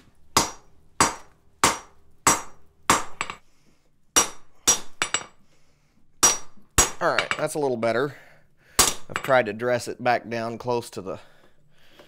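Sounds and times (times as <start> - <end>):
hammer striking hot steel on anvil: 0.4 - 3.4, 4.2 - 5.3, 6.2 - 7.5, 8.8 - 9.3.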